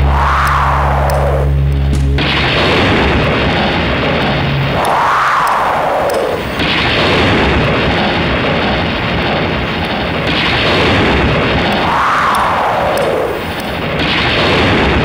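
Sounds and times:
rumbling booming sound effect: 0.0 - 15.0
whoosh: 0.0 - 15.0.

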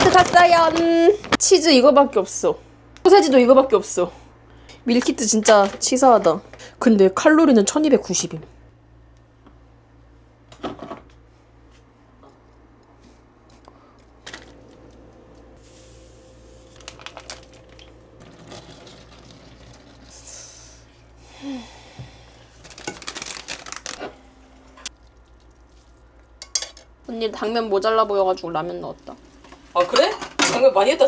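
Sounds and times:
faint steady hum: 0.0 - 31.0
plastic packaging crinkling and tearing: 16.7 - 20.1, 22.6 - 24.0.

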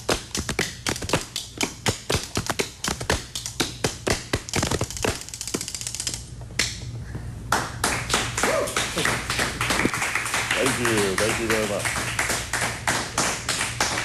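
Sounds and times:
clapping: 7.5 - 14.0.

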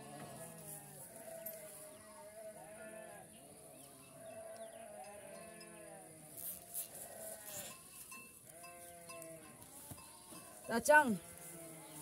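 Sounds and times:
goats bleating: 0.0 - 3.3, 11.1 - 12.0.

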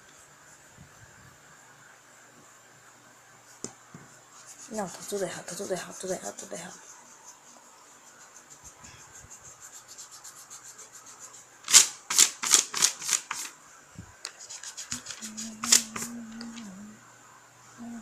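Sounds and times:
eraser scrubbing on paper: 4.1 - 13.5, 14.3 - 16.2
person humming a tune: 15.2 - 17.0, 17.8 - 18.0.

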